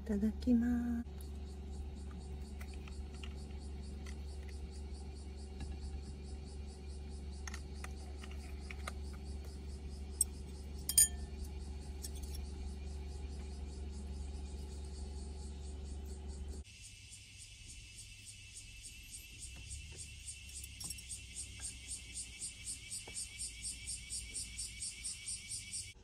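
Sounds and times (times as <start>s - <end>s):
high pulsing buzz: 0.0s - 26.0s
steady low hum: 0.0s - 26.0s
metal chopsticks clinking dishes: 10.9s - 11.2s.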